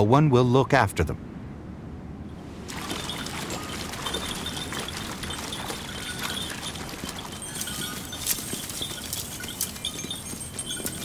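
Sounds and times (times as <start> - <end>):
hooves clattering over stones: 2.6 - 11.0.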